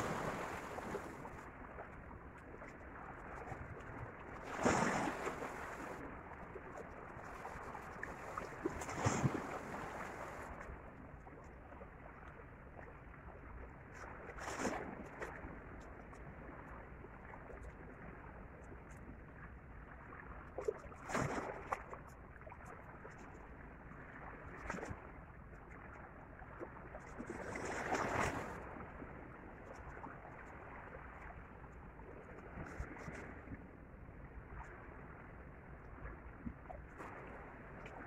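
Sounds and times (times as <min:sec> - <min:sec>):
waves lapping against rocks: 0:04.4 - 0:06.0, 0:08.1 - 0:10.6.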